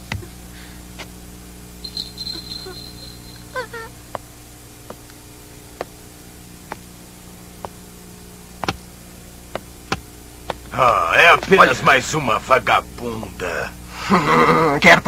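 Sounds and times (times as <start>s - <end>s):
low hiss and hum: 0.0s - 15.0s
boot heels clicking on pavement: 9.5s - 10.7s.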